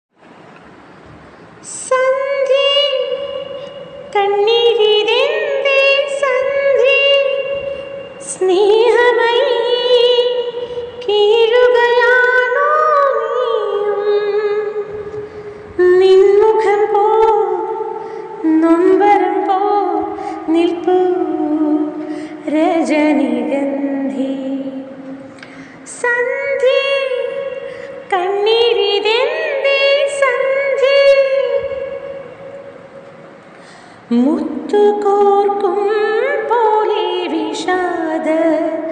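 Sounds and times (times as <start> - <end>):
woman singing slow melody: 1.6 - 33.0, 34.1 - 38.9.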